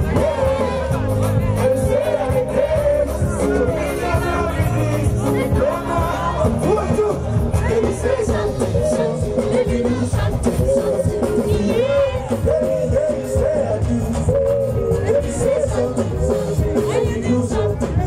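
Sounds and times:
live pop music: 0:00.0 - 0:18.0
man singing into microphone: 0:00.0 - 0:18.0.

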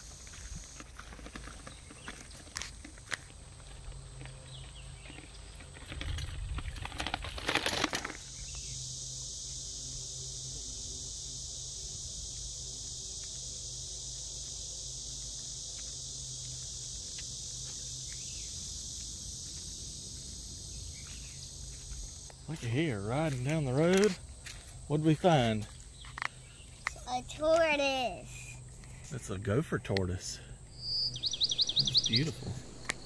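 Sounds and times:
high-pitched insect chorus: 0:00.0 - 0:33.0
faint low hum: 0:28.0 - 0:33.0.

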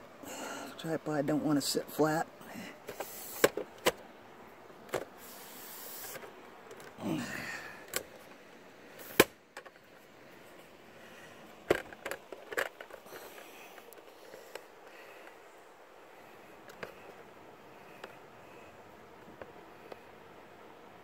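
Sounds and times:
tripod clicks and knocks on rock: 0:11.6 - 0:14.7.

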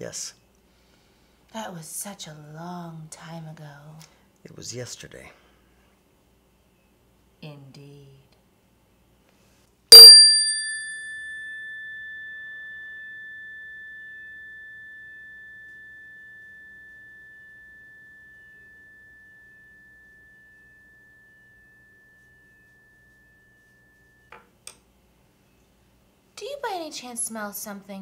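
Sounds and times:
bell ringing: 0:09.9 - 0:24.3.

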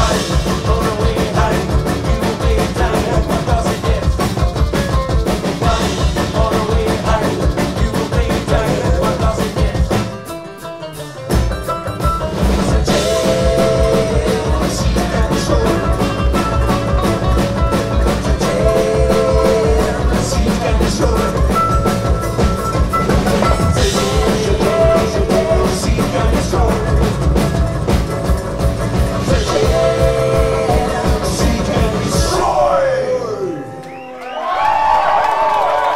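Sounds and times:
person singing: 0:00.0 - 0:04.7, 0:05.4 - 0:10.2, 0:12.4 - 0:22.0, 0:23.3 - 0:27.5, 0:29.1 - 0:34.1
strummed acoustic guitar: 0:00.0 - 0:32.5
driving beat: 0:00.0 - 0:32.8
picked banjo: 0:00.0 - 0:32.8
upright double bass: 0:00.0 - 0:33.4.

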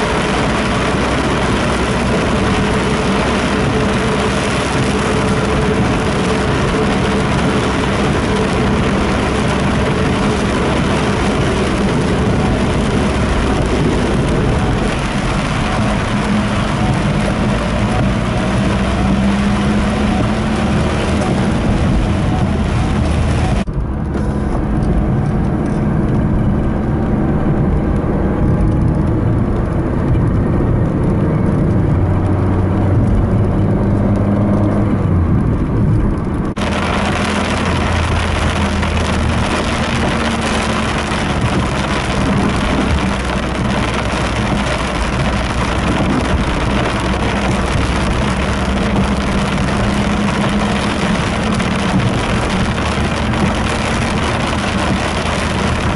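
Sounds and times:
rain hiss on wet road: 0:00.0 - 0:34.8, 0:36.1 - 0:55.9
car engine running: 0:00.0 - 0:55.9.

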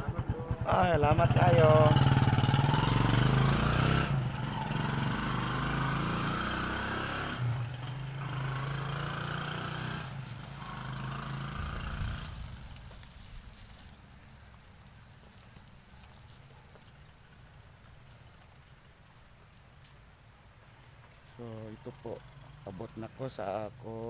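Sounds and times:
motorcycle engine pulling away: 0:00.0 - 0:14.4.

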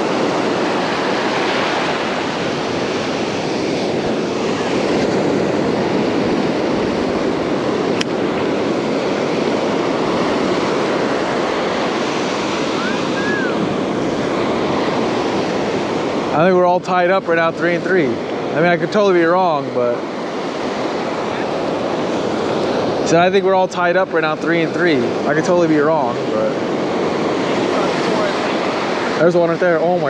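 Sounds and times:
ocean surf breaking: 0:00.0 - 0:30.0
sharp click: 0:08.0 - 0:08.2.

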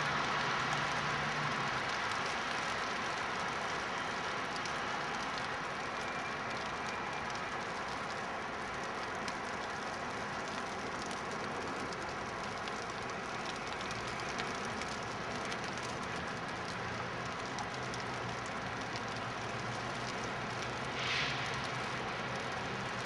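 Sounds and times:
even hiss: 0:20.9 - 0:21.8.

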